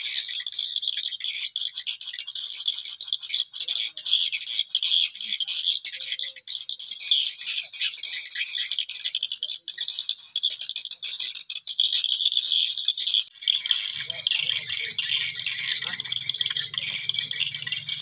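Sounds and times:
swiftlets chirping and clicking: 13.3 - 18.0.

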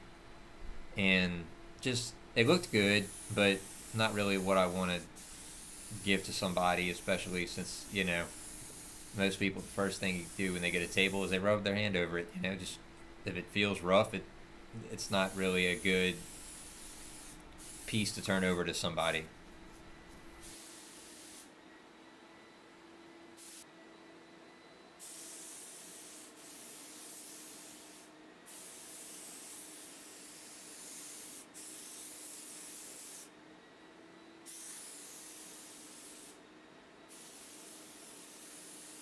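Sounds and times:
faint steady hum: 0.0 - 20.4
spray gun hissing: 2.4 - 11.4, 14.8 - 19.2, 20.4 - 21.5, 23.4 - 23.6, 25.0 - 33.3, 34.5 - 36.4, 37.1 - 39.0.

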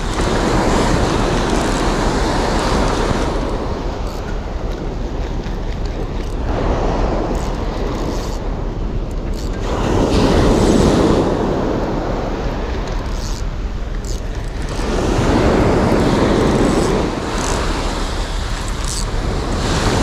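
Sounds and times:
surf breaking on beach: 0.0 - 4.6, 6.4 - 8.6, 9.6 - 12.8, 14.3 - 20.0
wind rumble on microphone: 0.0 - 20.0.

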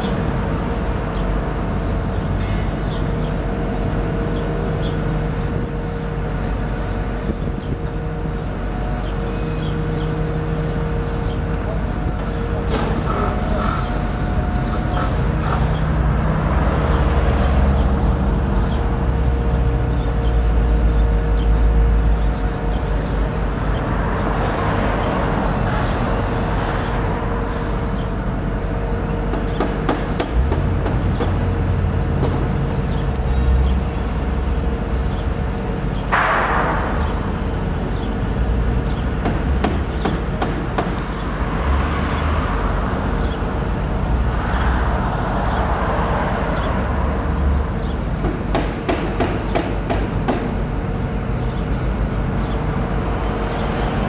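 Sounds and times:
engines rumbling: 0.0 - 54.0
hammering knocks: 29.3 - 31.5, 39.1 - 41.2, 48.2 - 50.6.

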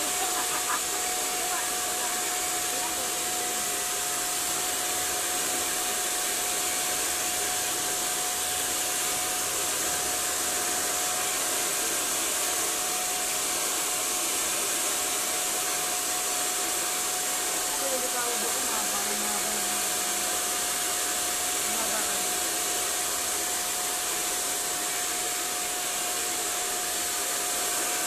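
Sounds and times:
hair dryer running: 0.0 - 28.0.

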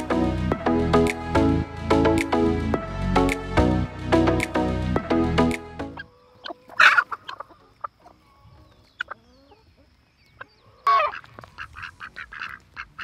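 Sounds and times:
chickens clucking: 5.9 - 13.0.

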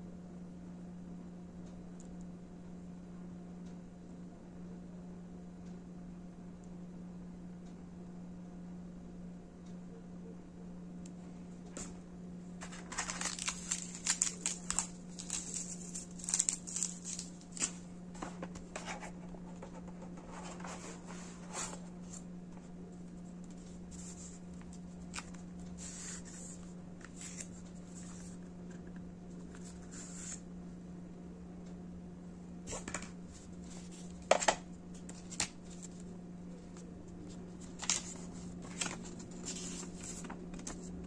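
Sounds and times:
steady low hum: 0.0 - 41.0
cardboard and paper rustling: 12.6 - 22.2, 36.7 - 40.9.

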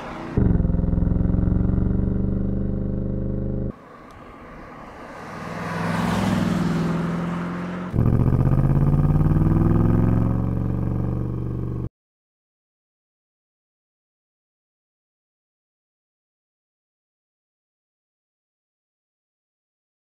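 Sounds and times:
car passing: 0.0 - 1.4, 3.6 - 11.8
car engine running under load: 0.0 - 5.2, 6.2 - 11.9.

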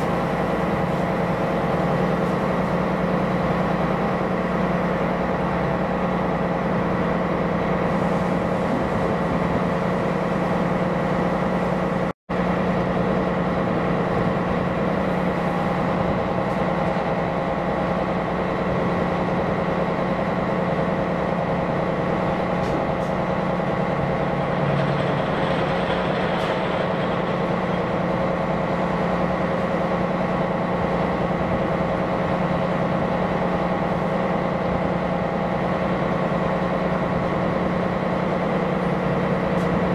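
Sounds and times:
ship diesel engine droning: 0.0 - 39.9.

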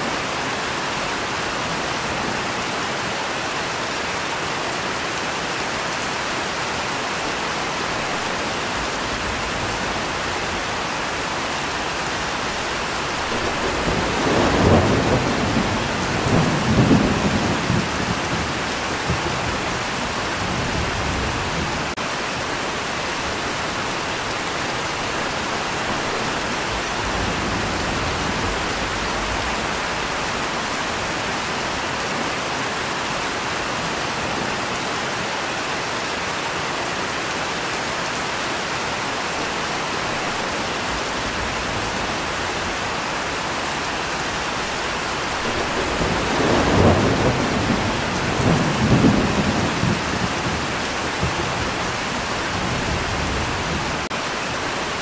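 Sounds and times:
steady rain falling: 0.0 - 55.0
thunder rumbling: 7.9 - 22.0, 44.2 - 54.1.

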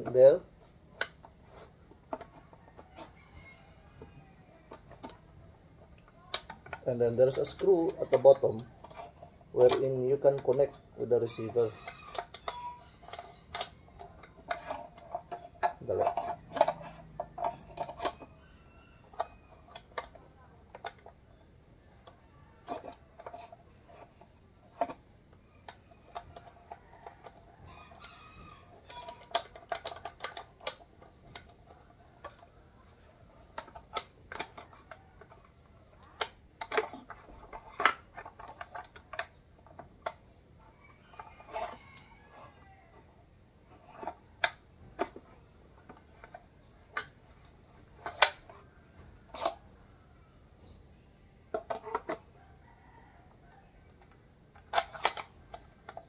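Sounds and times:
rifle parts clicking and scraping: 0.0 - 49.8, 51.5 - 56.0
rooster crowing: 2.6 - 4.6, 11.5 - 13.8, 26.5 - 29.4, 40.8 - 43.2.

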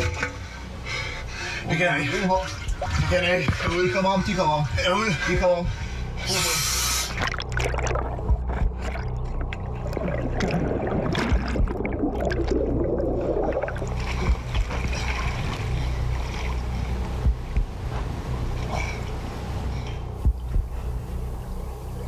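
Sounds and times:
steady low hum: 0.0 - 22.0
water splashing in pool: 7.1 - 16.8.

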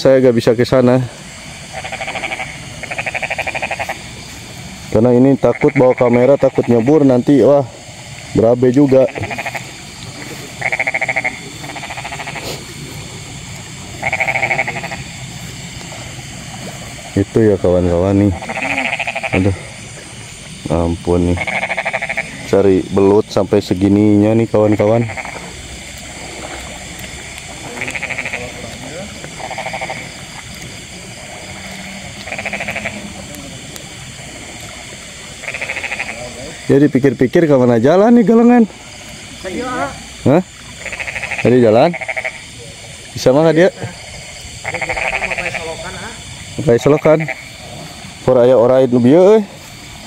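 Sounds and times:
frogs croaking: 0.0 - 50.0
high-pitched background hiss: 0.0 - 50.0.

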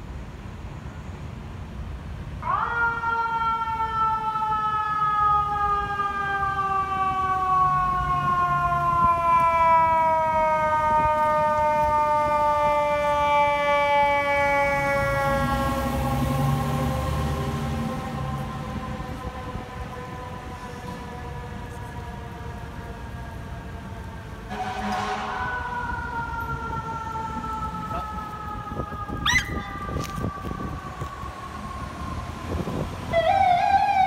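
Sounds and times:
mechanical siren wailing: 2.4 - 34.0.

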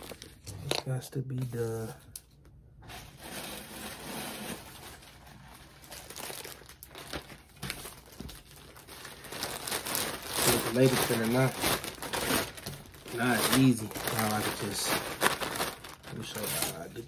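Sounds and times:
plastic packaging crinkling: 3.1 - 17.0
sharp plastic crackles: 3.6 - 17.0.

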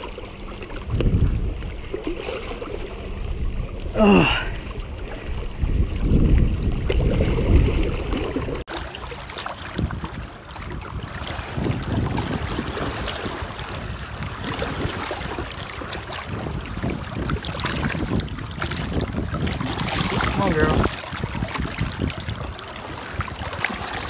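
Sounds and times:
low rumble: 0.0 - 15.4
water sloshing and splashing: 0.0 - 24.0.

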